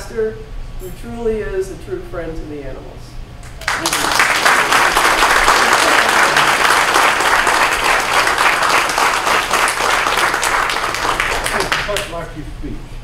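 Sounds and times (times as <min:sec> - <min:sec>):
crowd applauding: 0:03.4 - 0:12.2.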